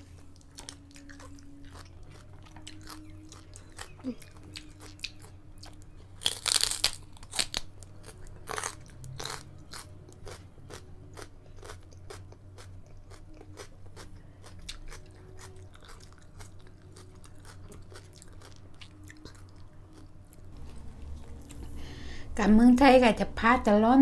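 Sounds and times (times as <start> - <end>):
crunchy chewing of raw vegetable: 0.0 - 22.0.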